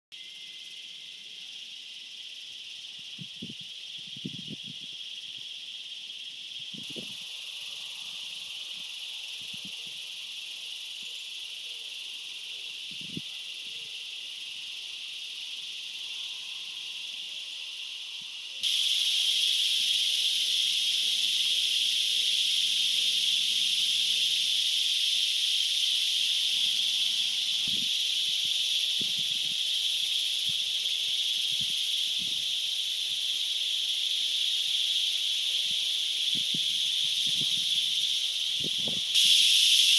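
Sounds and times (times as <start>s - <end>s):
high-pitched insect buzzing: 18.6s - 39.9s.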